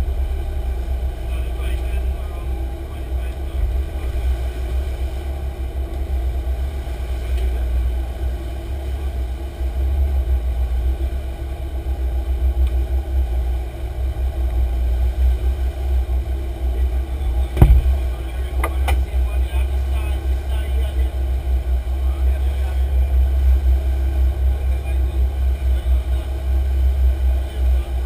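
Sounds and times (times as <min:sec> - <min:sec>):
boat engine drone: 0:00.0 - 0:28.0
rushing water: 0:00.0 - 0:28.0
wind rumble: 0:00.0 - 0:28.0.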